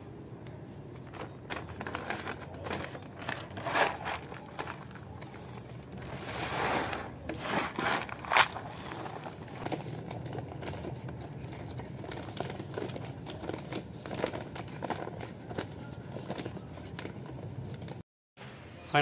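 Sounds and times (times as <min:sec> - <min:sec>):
plastic bag crinkling: 0:00.9 - 0:17.9
soil being filled: 0:06.0 - 0:09.3.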